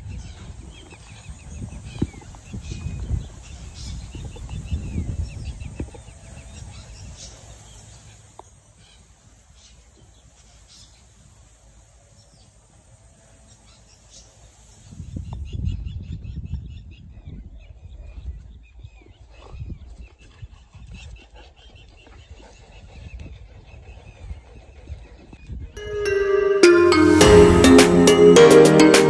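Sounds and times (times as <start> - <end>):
wind rumbling on microphone: 0.0 - 7.2.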